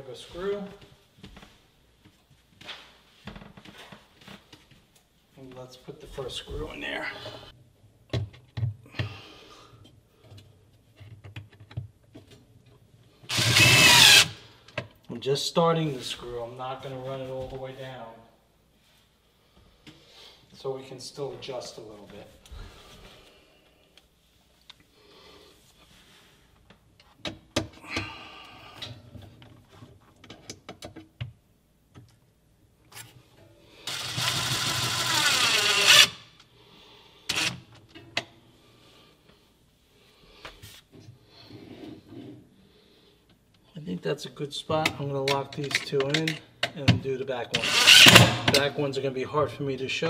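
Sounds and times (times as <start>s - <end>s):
cordless drill whining: 13.3s - 14.4s, 33.8s - 36.2s, 37.3s - 37.6s, 47.6s - 48.4s.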